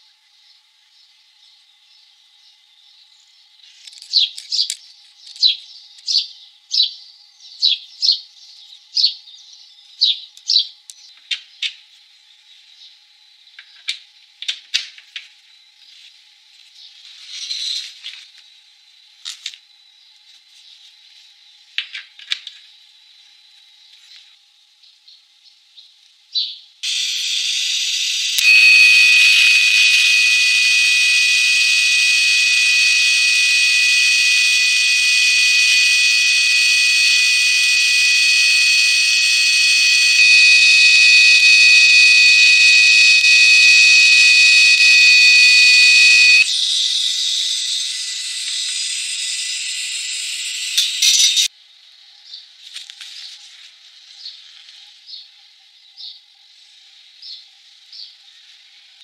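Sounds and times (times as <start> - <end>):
welding arc hissing: 26.8 - 46.4
high-pitched tones: 28.4 - 46.4.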